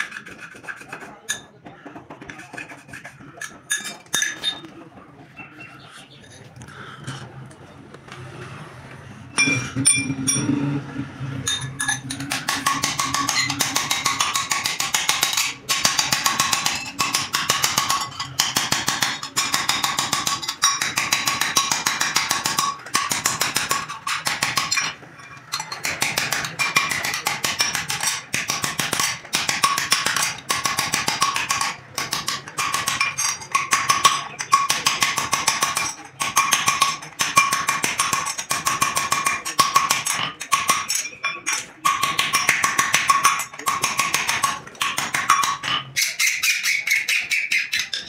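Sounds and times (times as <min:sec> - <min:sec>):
hammer striking steel: 0:09.3 - 0:10.7, 0:11.4 - 0:48.0.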